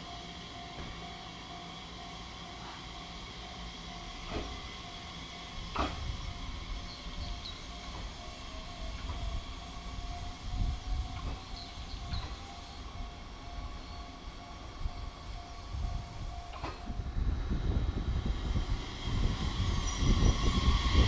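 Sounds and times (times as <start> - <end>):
steady high-pitched tones: 0.0 - 17.4
train low rumble: 0.0 - 21.0.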